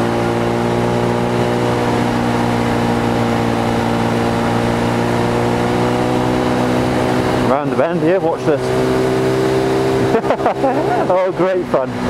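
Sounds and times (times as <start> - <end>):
motorcycle engine cruising: 0.0 - 12.0.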